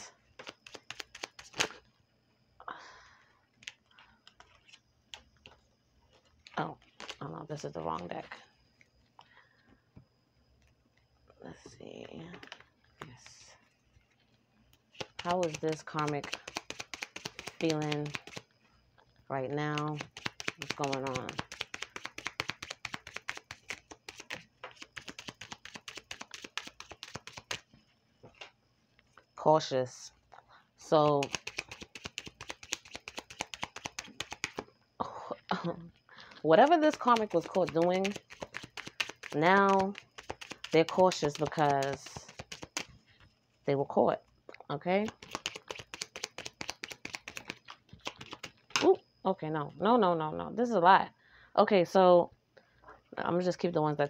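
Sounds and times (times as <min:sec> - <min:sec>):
card rustle: 0:00.4 - 0:01.7, 0:14.9 - 0:18.4, 0:19.8 - 0:27.6, 0:31.2 - 0:34.6, 0:36.7 - 0:42.9, 0:45.0 - 0:48.6
cards clicking and tapping: 0:00.4 - 0:01.7, 0:15.0 - 0:18.4, 0:19.8 - 0:27.6, 0:31.1 - 0:34.7, 0:36.6 - 0:42.9, 0:45.0 - 0:48.9.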